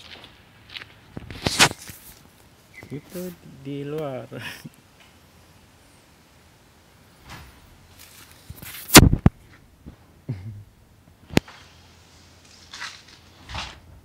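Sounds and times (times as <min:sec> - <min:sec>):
microphone handling rustling: 0:01.1 - 0:03.4, 0:07.3 - 0:10.0.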